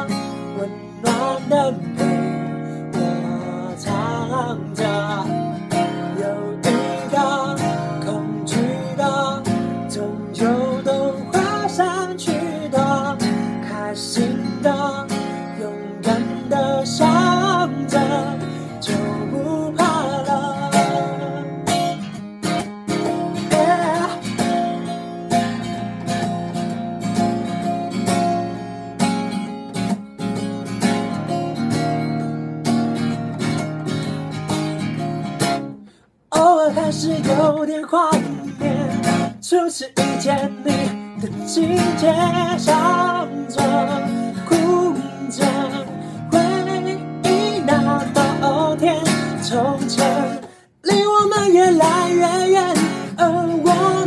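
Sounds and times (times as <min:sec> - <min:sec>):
man singing: 0:00.0 - 0:22.0, 0:22.9 - 0:24.8, 0:36.3 - 0:54.0
acoustic guitar strumming chords: 0:00.0 - 0:54.0.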